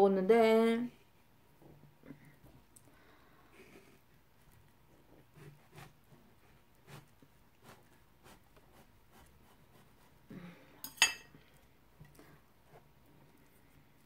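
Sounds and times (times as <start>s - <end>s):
knife cutting watermelon: 5.1s - 10.3s.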